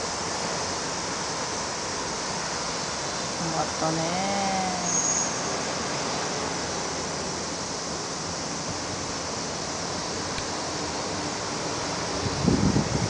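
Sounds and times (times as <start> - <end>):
outdoor background hiss: 0.0 - 13.0
person speaking: 3.4 - 4.9.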